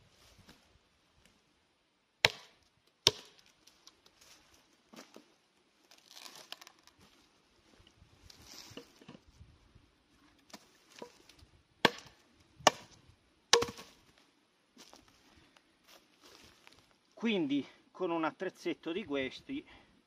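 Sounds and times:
tomahawk striking log: 2.2 - 3.4, 11.8 - 13.9
log being handled: 2.2 - 9.4, 10.1 - 17.0.

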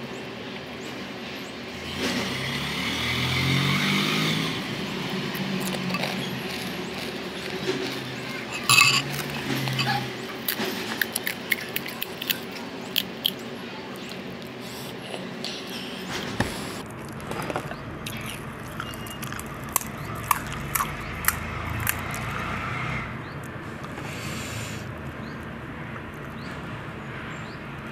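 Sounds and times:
crisp shells cracking: 5.3 - 13.4.

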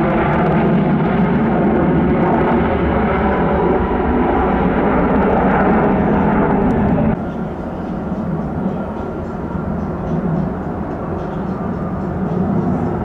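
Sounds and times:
jet engines roaring on take-off: 0.0 - 13.0.

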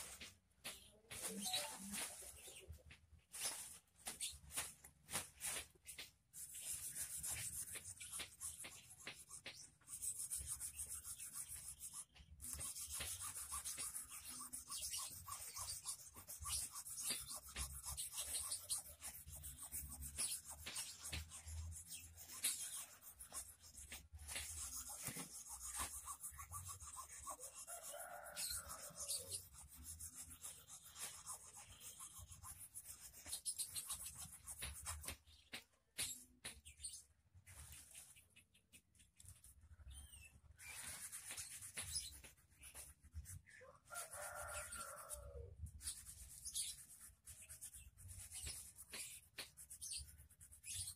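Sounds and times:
hand file rasping on steel wire: 6.4 - 36.1.

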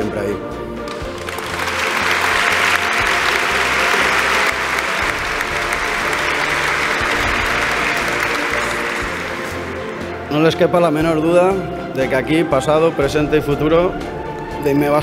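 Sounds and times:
background music: 0.0 - 15.0
large audience applauding: 0.9 - 10.5.

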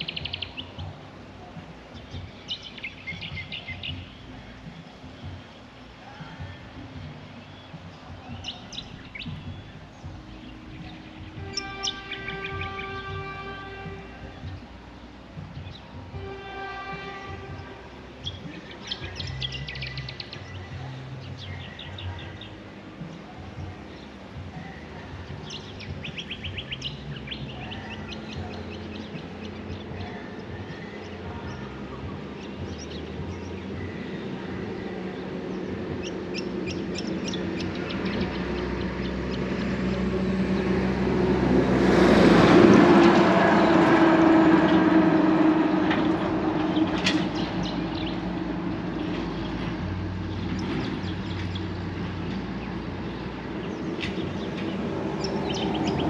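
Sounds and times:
birds chirping: 0.0 - 56.0
vehicle passing hum: 0.0 - 56.0.

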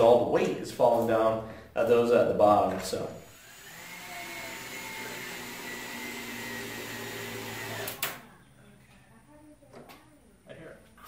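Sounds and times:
cordless drill motor whine: 3.2 - 8.0.

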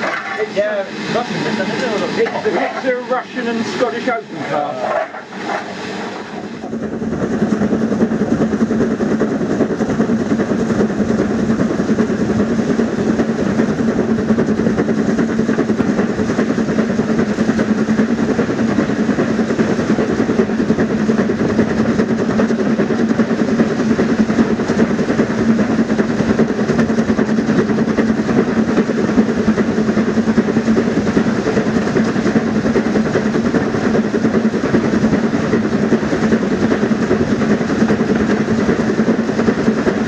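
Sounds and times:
train rumbling on track: 0.0 - 40.0.

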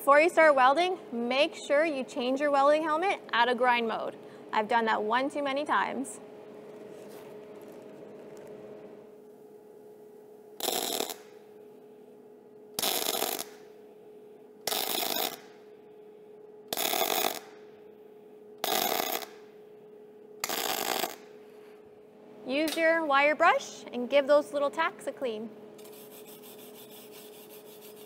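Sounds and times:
welding arc crackling: 10.6 - 11.4, 12.8 - 13.6, 14.7 - 15.6, 16.7 - 17.6, 18.6 - 19.4, 20.4 - 21.2.

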